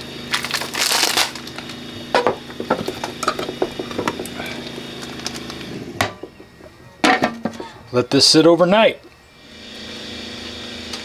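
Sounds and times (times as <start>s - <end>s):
steady low hum: 0.0s - 11.0s
knocks and scrapes in ceramic crock: 2.2s - 4.6s.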